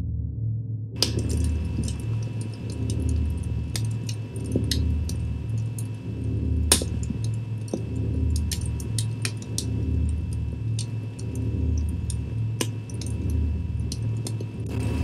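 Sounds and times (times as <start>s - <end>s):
low pulsing musical drone: 0.0s - 15.0s
campfire crackling and popping: 1.0s - 15.0s.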